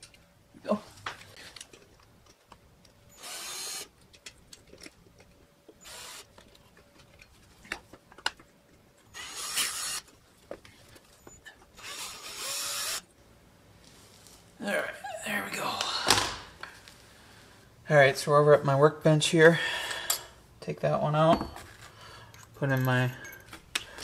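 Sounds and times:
cordless drill whirring: 0:03.1 - 0:03.9, 0:05.8 - 0:06.3, 0:09.1 - 0:10.0, 0:11.8 - 0:13.1.

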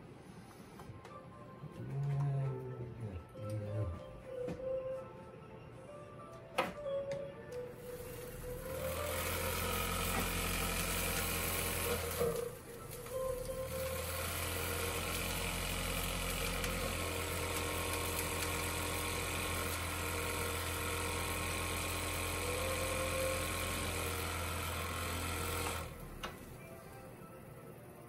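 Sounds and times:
low electrical buzz: 0:07.7 - 0:28.0
model train mechanical hum: 0:08.2 - 0:26.4.

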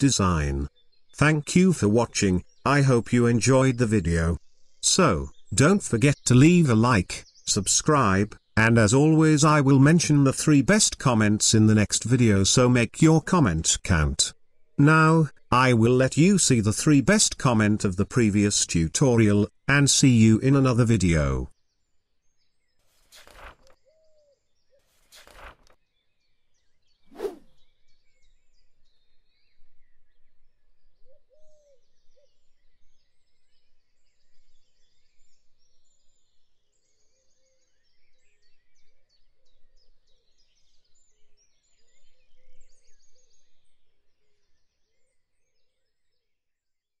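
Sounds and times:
faint birds chirping: 0:00.0 - 0:46.7
short swishes: 0:22.9 - 0:23.7, 0:24.9 - 0:25.7, 0:27.1 - 0:27.5.

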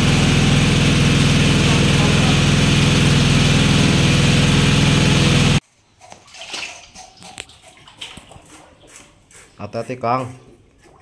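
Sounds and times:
engine-driven water pump running: 0:00.0 - 0:05.6.

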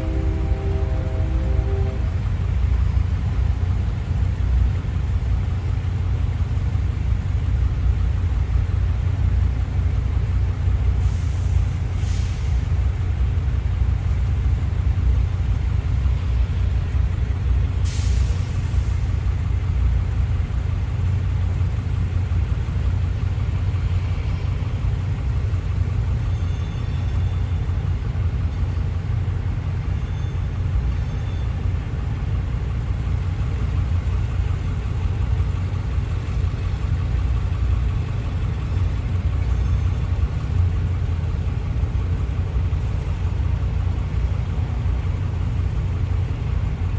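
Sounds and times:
freight train rumbling: 0:00.0 - 0:46.9
brief hiss: 0:11.0 - 0:12.7, 0:17.8 - 0:19.1.

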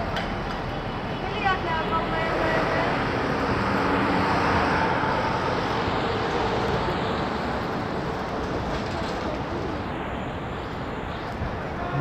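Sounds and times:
city street traffic: 0:00.0 - 0:12.0
vehicle passing: 0:11.8 - 0:12.0.

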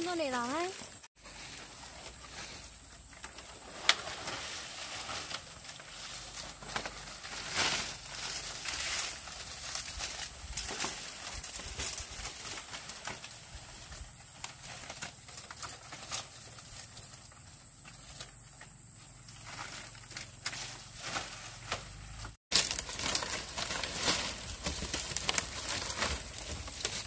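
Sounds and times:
dry thatch rustling and crackling: 0:00.0 - 0:27.0
sharp snaps of leaves: 0:22.5 - 0:27.0.

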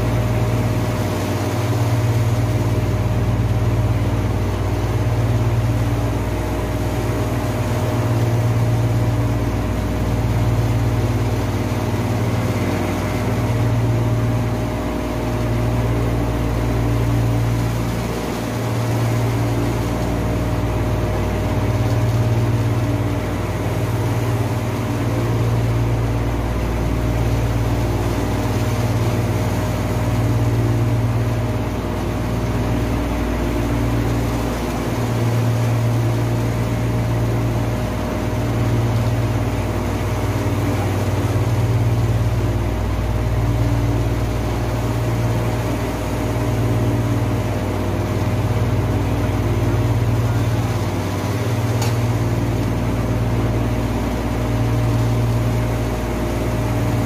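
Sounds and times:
heavy machinery drone: 0:00.0 - 0:57.0.

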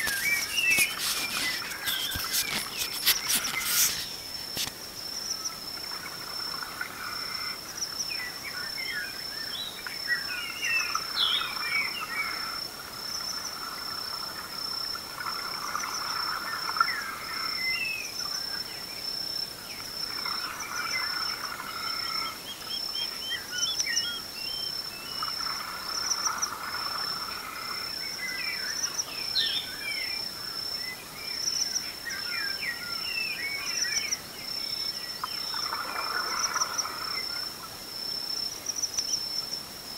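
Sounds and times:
birds singing: 0:00.0 - 0:04.3, 0:08.2 - 0:12.4, 0:20.7 - 0:25.3, 0:28.1 - 0:30.2.

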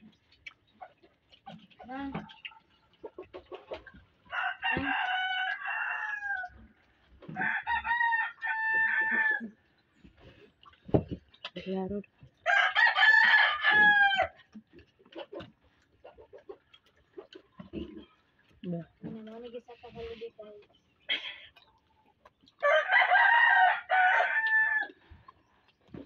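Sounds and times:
rooster crowing: 0:04.3 - 0:06.6, 0:07.4 - 0:09.5, 0:12.4 - 0:14.4, 0:22.6 - 0:25.0.

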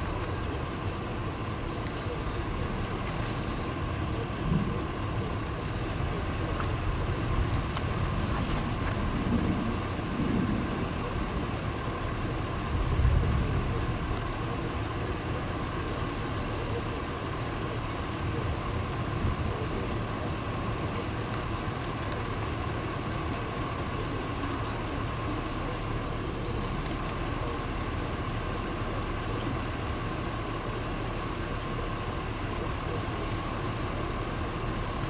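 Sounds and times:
faint steady hum: 0:00.0 - 0:35.0
wind noise on microphone: 0:06.9 - 0:11.3, 0:12.7 - 0:14.1.

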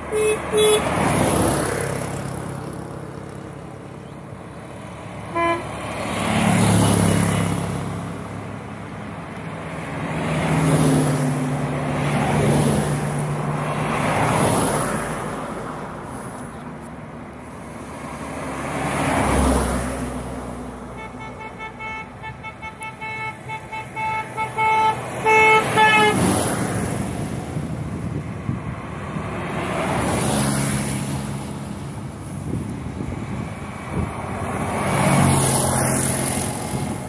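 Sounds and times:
cars driving past: 0:00.0 - 0:37.0
car horn tooting: 0:00.1 - 0:01.0, 0:05.3 - 0:05.8, 0:21.0 - 0:26.4.

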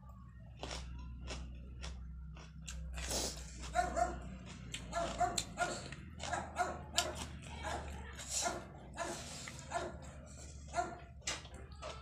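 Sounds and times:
dog barking: 0:03.7 - 0:04.3, 0:04.9 - 0:10.1, 0:10.7 - 0:11.1.

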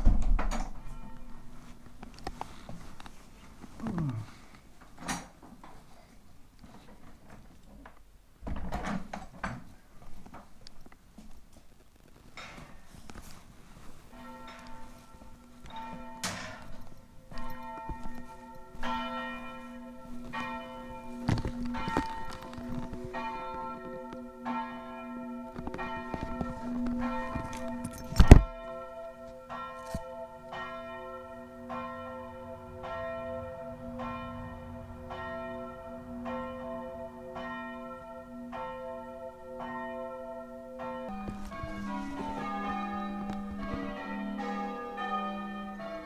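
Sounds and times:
church bells ringing: 0:00.6 - 0:01.9, 0:13.7 - 0:46.0.

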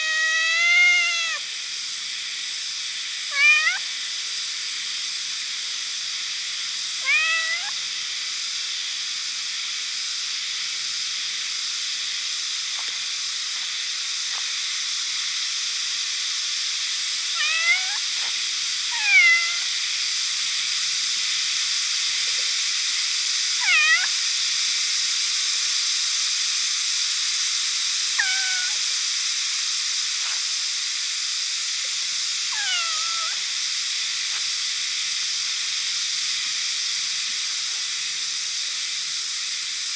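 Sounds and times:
cat meowing: 0:00.0 - 0:01.4, 0:03.3 - 0:03.8, 0:07.0 - 0:07.8, 0:17.3 - 0:18.0, 0:18.9 - 0:19.7, 0:23.6 - 0:24.1, 0:28.2 - 0:28.8, 0:32.5 - 0:33.4
steady high hiss: 0:00.0 - 0:39.9.

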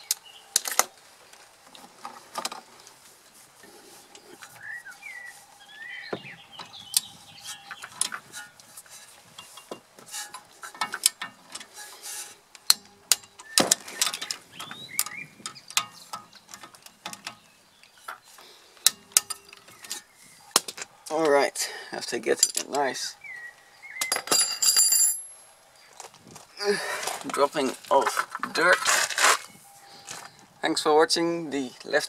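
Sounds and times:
metal-on-metal clicks: 0:06.6 - 0:20.9.

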